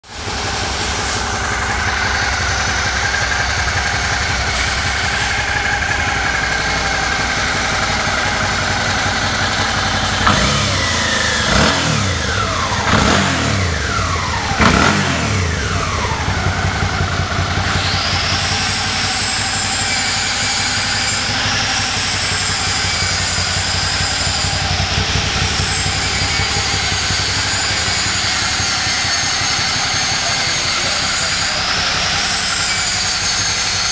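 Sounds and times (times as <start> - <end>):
motorcycle engine idling and revving: 0.0 - 33.9.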